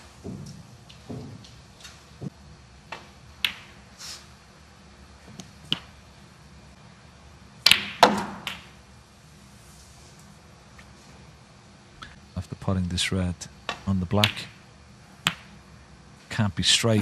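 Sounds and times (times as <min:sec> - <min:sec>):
snooker balls clicking: 0:02.9 - 0:03.8, 0:05.4 - 0:06.0, 0:07.6 - 0:08.8, 0:13.7 - 0:14.6, 0:15.2 - 0:15.6.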